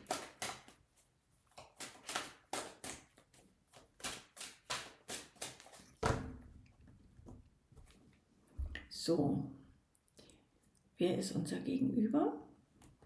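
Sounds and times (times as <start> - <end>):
cards being shuffled: 0.0 - 6.2.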